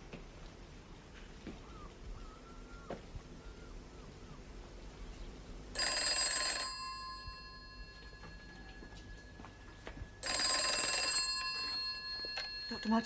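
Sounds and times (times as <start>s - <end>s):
telephone bell ringing: 5.8s - 13.0s.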